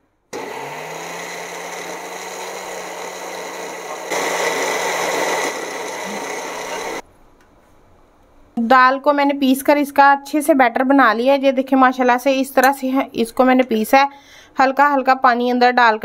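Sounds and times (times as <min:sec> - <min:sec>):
electric grinder running: 0:00.4 - 0:07.0.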